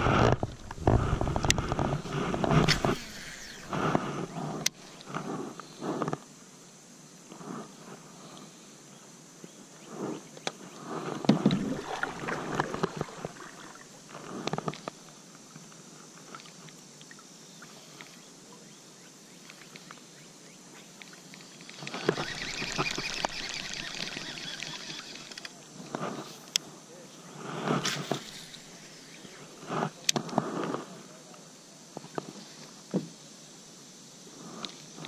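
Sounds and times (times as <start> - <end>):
rubbing and scraping: 0.0 - 6.2
fishing reel clicks: 21.8 - 25.5.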